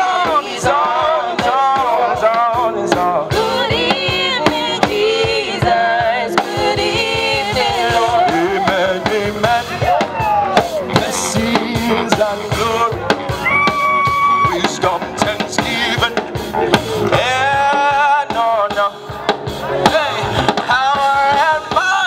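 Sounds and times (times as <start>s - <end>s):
man singing gospel: 0.0s - 13.4s, 14.4s - 22.0s
drum beat: 0.0s - 22.0s
keyboard: 0.0s - 22.0s.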